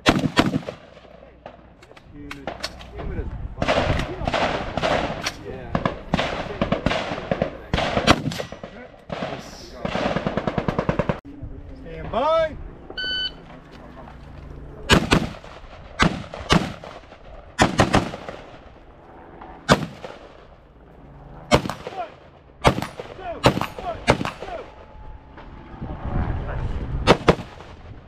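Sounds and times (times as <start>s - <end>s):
rifle gunshots: 0.0s - 1.7s, 3.6s - 11.2s, 14.9s - 18.8s, 19.4s - 20.5s, 21.5s - 24.8s, 27.0s - 28.0s.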